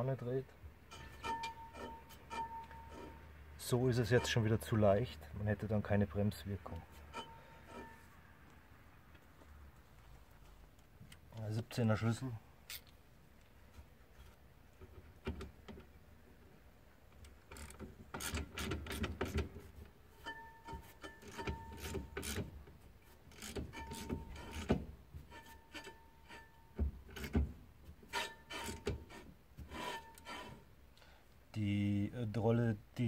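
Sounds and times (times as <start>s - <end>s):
short squeaks: 0.9s - 3.2s, 7.0s - 8.1s, 28.1s - 30.7s.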